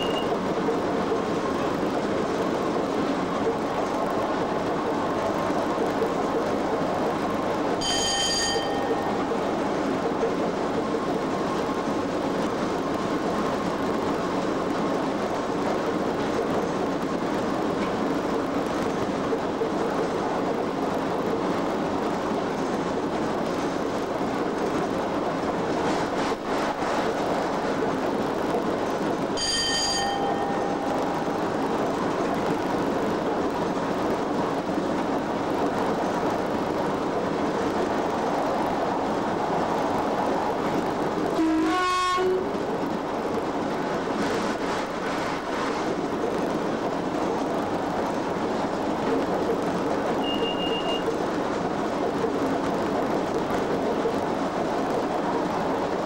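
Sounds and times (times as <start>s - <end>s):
bell-like ringing tone: 7.8s - 9.2s, 29.4s - 30.8s.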